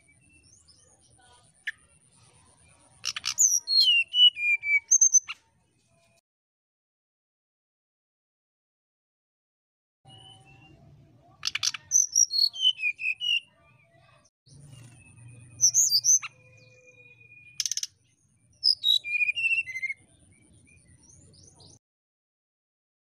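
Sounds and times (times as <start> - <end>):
bird singing whistled phrases: 3.1 - 5.4, 10.1 - 10.8, 11.4 - 13.5, 14.7 - 17.9, 18.6 - 21.0.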